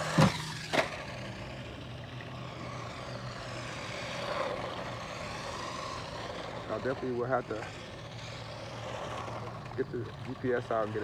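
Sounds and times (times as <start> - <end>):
electric motor whining: 0.0 - 11.0.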